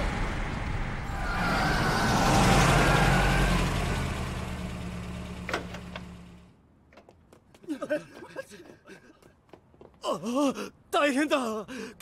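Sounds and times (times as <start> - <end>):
truck engine rumbling: 0.0 - 6.6.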